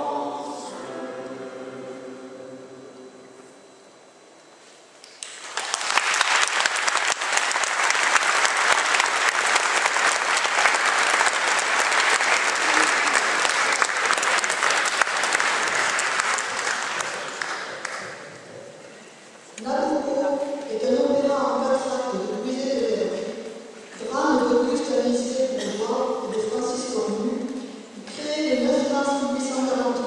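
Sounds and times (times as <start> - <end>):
audience applauding: 5.1 - 18.3.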